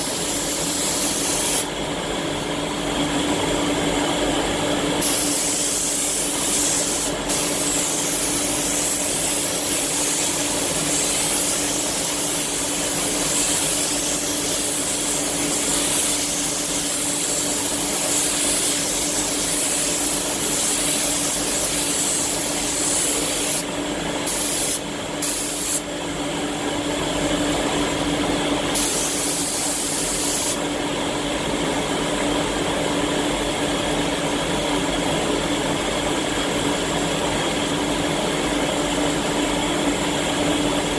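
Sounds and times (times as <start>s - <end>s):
spray gun hissing: 0.0s - 1.7s, 5.0s - 25.9s, 28.7s - 30.6s.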